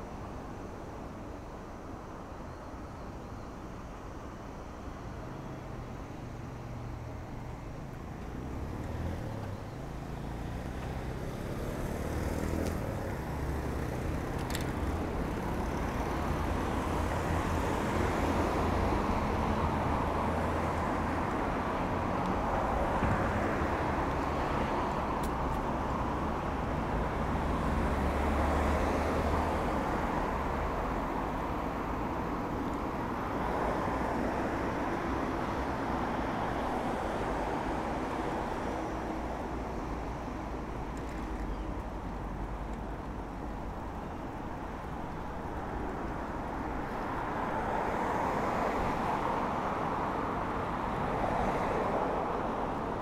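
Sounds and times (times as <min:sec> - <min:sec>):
cars passing: 0:05.4 - 0:53.0.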